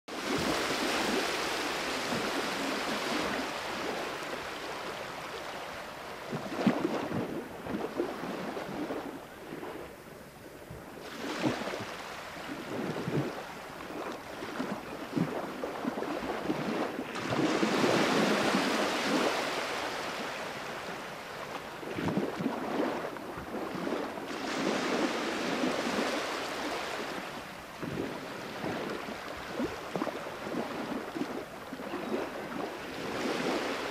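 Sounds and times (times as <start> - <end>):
wind buffeting microphone: 0.1 - 5.4, 6.2 - 33.9.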